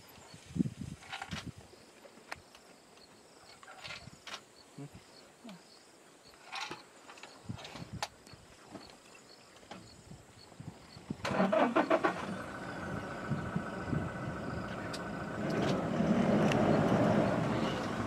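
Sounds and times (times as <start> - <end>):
vehicle engine cranking and running: 11.2 - 18.0.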